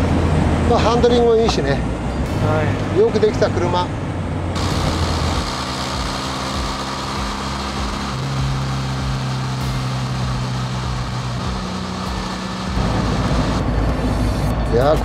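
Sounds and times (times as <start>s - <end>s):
road noise: 0.0s - 15.0s
car engine running: 4.2s - 14.5s.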